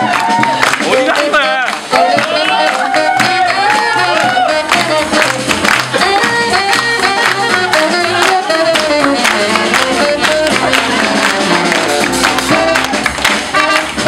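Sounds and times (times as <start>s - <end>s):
drum beat: 0.0s - 14.0s
saxophone melody: 0.1s - 14.0s.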